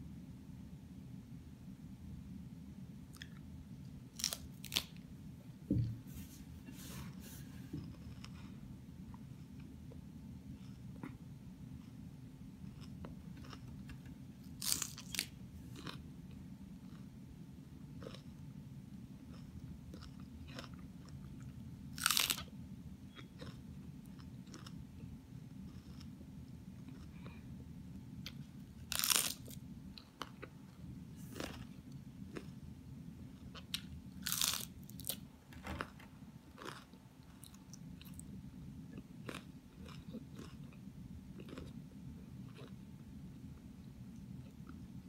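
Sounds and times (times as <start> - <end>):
crunchy lettuce bites: 4.1 - 5.0, 14.5 - 16.0, 21.9 - 22.5, 28.8 - 29.6, 33.7 - 35.2
chewing crunches: 23.1 - 24.8, 25.6 - 26.2, 28.2 - 30.6, 31.3 - 32.6, 36.5 - 38.3, 38.9 - 40.8, 41.4 - 41.8, 42.4 - 42.8.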